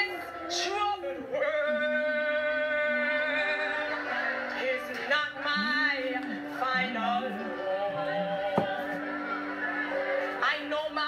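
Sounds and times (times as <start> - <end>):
worship music accompaniment: 0.0 - 11.0
person singing long notes: 1.4 - 4.0, 6.8 - 9.0.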